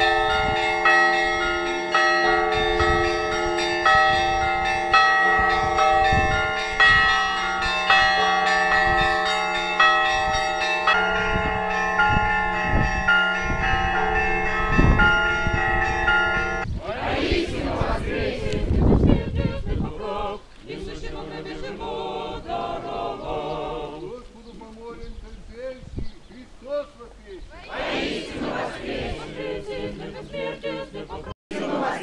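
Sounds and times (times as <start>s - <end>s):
church bells ringing: 0.0s - 16.7s.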